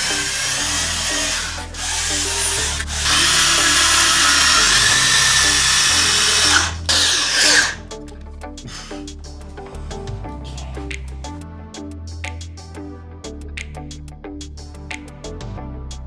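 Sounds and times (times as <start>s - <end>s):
electric drill driving screws into wood: 0.0s - 7.8s
background music: 0.0s - 16.0s.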